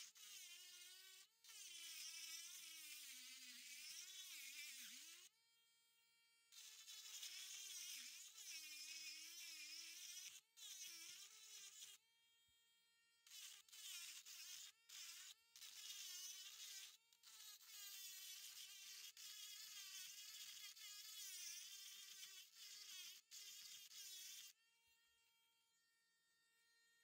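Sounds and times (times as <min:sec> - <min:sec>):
rotary tool grinding rock: 0:00.0 - 0:05.3, 0:06.6 - 0:12.0, 0:13.3 - 0:24.6.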